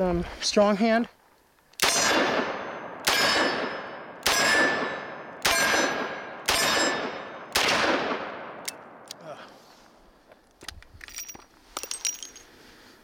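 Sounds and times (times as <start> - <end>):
revolver gunshots with echo: 1.8 - 8.7.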